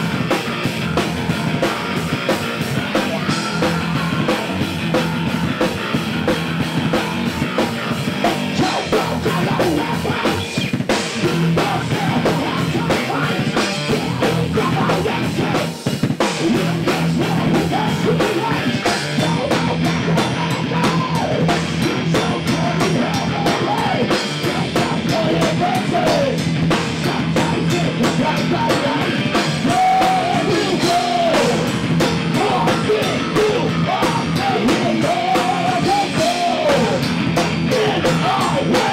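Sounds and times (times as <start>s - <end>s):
bass guitar: 0.0s - 38.9s
drum kit: 0.0s - 38.9s
electric guitars: 0.0s - 38.9s
person singing: 8.2s - 38.9s.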